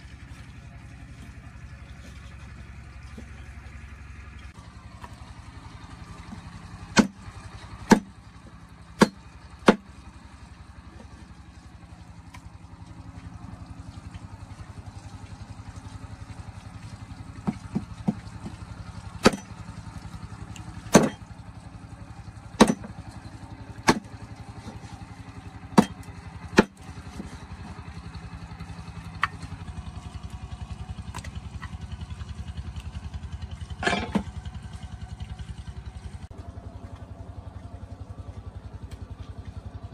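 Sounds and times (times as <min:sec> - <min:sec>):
small engine rumbling: 0:00.0 - 0:39.9
sharp knocks: 0:20.9 - 0:21.2, 0:22.6 - 0:22.9.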